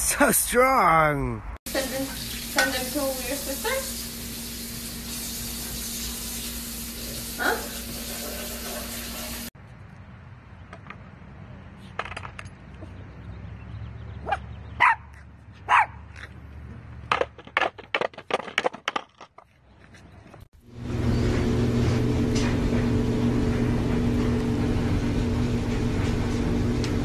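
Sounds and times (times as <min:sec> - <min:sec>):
dog barking: 0:07.4 - 0:07.8, 0:14.2 - 0:16.0.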